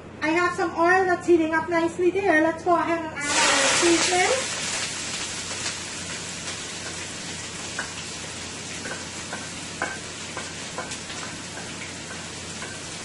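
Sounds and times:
seasoning sizzling in hot oil: 0:03.2 - 0:13.0.

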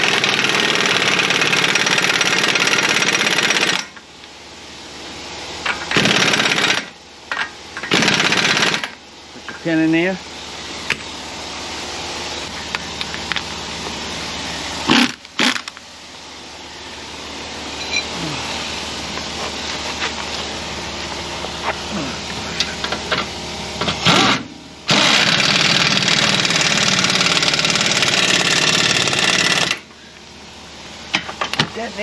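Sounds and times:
air impact wrench hammering: 0:00.0 - 0:04.0, 0:05.6 - 0:09.0, 0:14.8 - 0:15.8, 0:22.8 - 0:29.9.

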